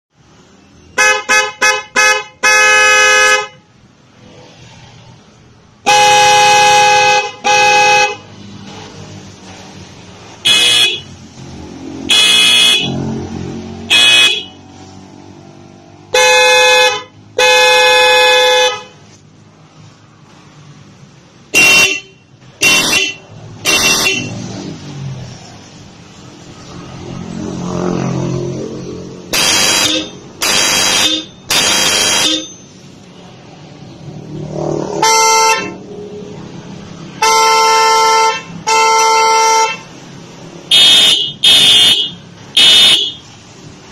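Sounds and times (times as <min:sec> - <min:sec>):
vehicle horn toots: 0:00.9 - 0:03.6, 0:05.9 - 0:08.2, 0:10.4 - 0:11.1, 0:12.1 - 0:13.1, 0:13.9 - 0:14.6, 0:16.1 - 0:19.0, 0:21.6 - 0:24.4, 0:29.3 - 0:32.6, 0:35.0 - 0:35.8, 0:37.2 - 0:39.8, 0:40.7 - 0:43.2.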